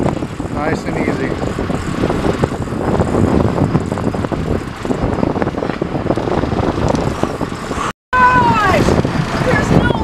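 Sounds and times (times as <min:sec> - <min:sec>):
boat engine running: 0:00.0 - 0:10.0
wind buffeting microphone: 0:00.0 - 0:10.0.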